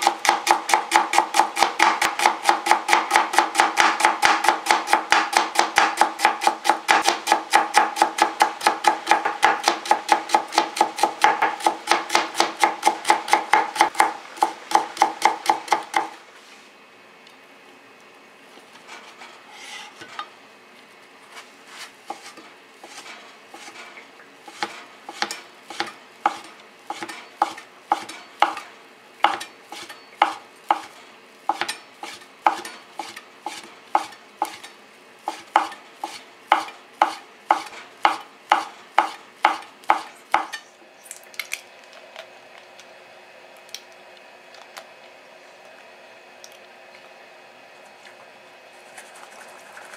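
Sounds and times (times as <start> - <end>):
knife chopping on cutting board: 0.0 - 16.2, 22.1 - 23.0, 24.5 - 28.6, 29.2 - 34.7, 35.3 - 40.6.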